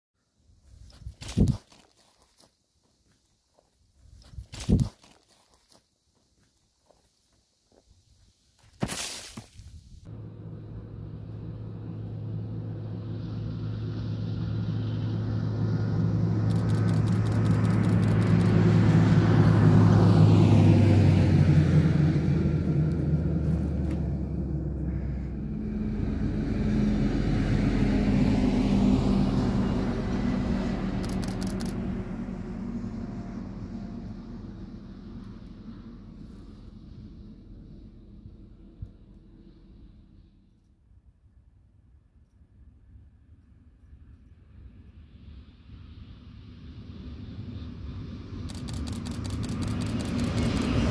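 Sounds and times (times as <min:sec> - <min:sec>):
diesel railcar passing: 0:10.1 - 0:40.5, 0:45.1 - 0:50.9.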